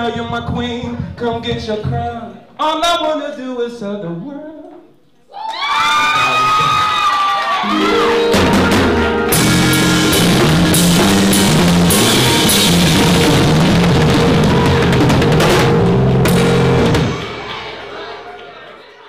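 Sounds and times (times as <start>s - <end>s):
live band playing: 7.6s - 18.1s
bass line: 7.7s - 17.3s
drum kit hits: 7.7s - 18.0s.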